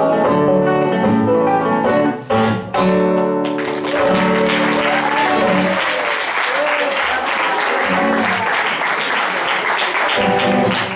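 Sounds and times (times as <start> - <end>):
acoustic guitar chords: 0.0 - 5.8
applause: 3.4 - 10.9.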